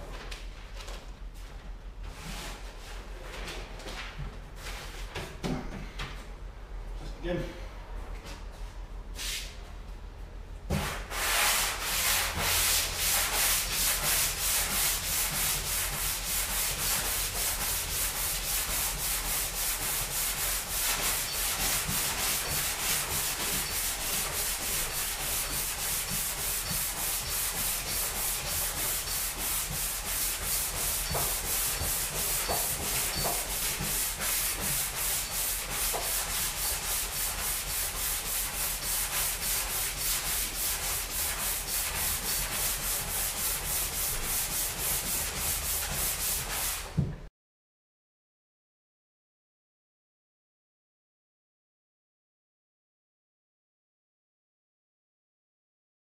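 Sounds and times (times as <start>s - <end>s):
sandpaper sanding metal panel: 11.0s - 46.9s.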